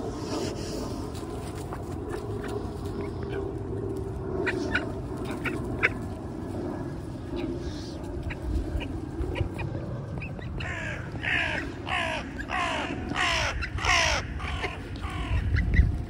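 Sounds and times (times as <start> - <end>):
crow cawing: 10.6 - 15.5.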